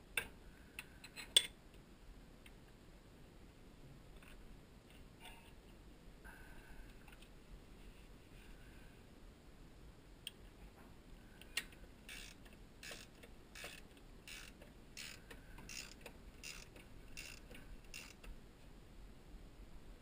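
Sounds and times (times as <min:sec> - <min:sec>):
ratchet wrench clicking: 0:12.1 - 0:18.3.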